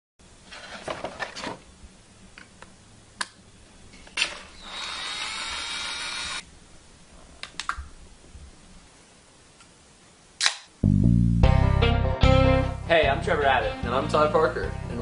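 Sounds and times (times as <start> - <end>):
cordless drill motor whine: 4.5 - 6.4.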